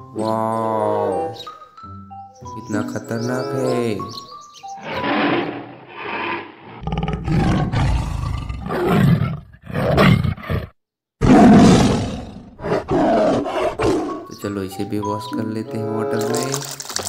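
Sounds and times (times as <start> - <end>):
tiger roaring and growling: 4.8 - 14.3.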